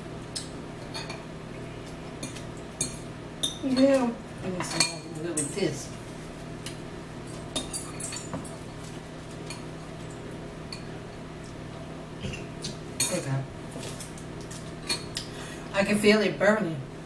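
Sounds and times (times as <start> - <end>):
steady low hum: 0.0 - 17.0
spoons clinking against bowls: 2.2 - 5.6, 7.5 - 8.6.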